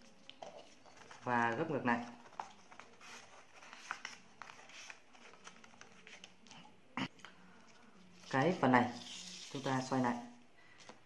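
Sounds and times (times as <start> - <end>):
paper rustling and crackling: 0.0 - 6.6.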